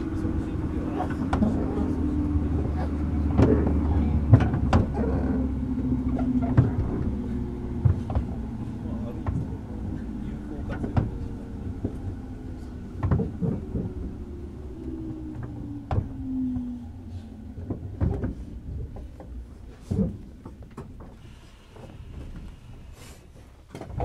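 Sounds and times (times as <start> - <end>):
train traction motor whine: 0.0 - 19.6
train wheels clunking over track: 2.6 - 9.9.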